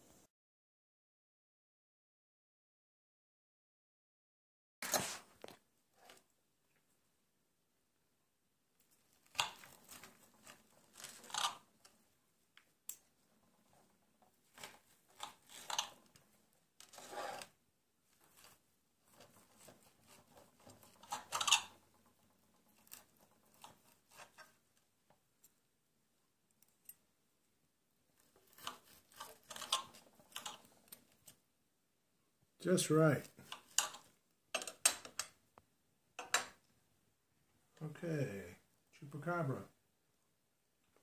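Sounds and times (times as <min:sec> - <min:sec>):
blade scraping a plate: 0:16.8 - 0:17.5.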